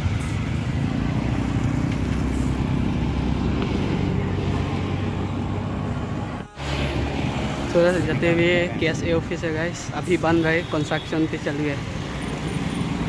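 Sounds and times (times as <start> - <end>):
vehicle engine running: 0.0 - 9.0
road noise: 0.0 - 13.0.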